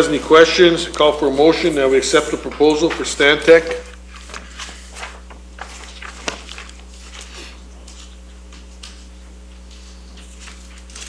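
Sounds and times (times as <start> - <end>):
low electrical hum: 0.0 - 11.0
papers rustling and clicking: 2.5 - 11.0.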